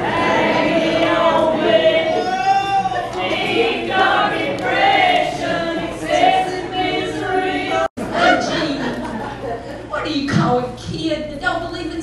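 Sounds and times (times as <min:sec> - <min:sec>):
women singing together: 0:00.0 - 0:02.3, 0:03.2 - 0:09.0.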